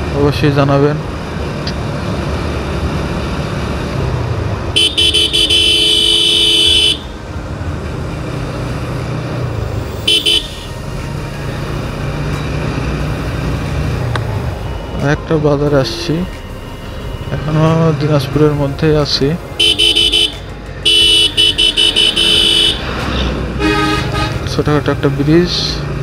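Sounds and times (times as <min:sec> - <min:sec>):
motorcycle horn: 0:04.7 - 0:07.2, 0:10.0 - 0:10.8, 0:19.6 - 0:23.0, 0:23.6 - 0:24.4.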